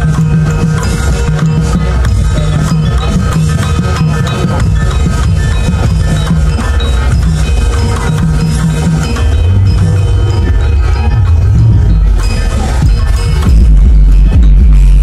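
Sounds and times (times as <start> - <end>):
loud bass-heavy music: 0.0 - 15.0.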